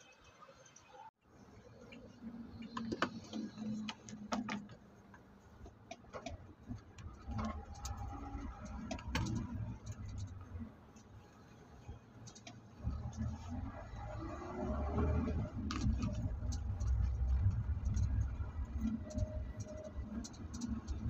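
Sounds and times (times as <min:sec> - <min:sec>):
vehicle rumble from inside cabin: 0:06.5 - 0:10.8, 0:12.8 - 0:21.0.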